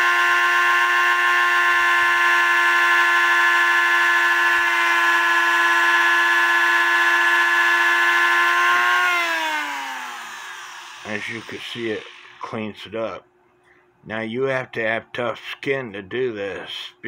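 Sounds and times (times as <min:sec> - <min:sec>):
rotary tool wire brush whine: 0:00.0 - 0:12.7.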